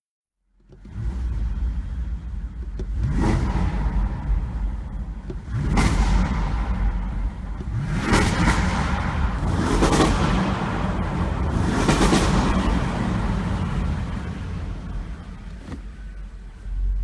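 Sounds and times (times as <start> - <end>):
car engine idling: 0.5 - 17.0
engine revving: 2.8 - 15.3.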